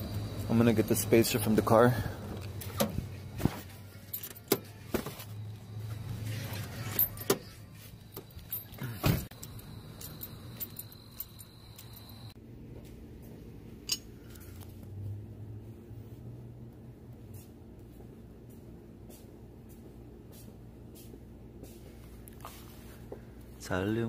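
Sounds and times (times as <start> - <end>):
clicks and knocks of metal parts: 6.6 - 12.4, 13.8 - 14.7.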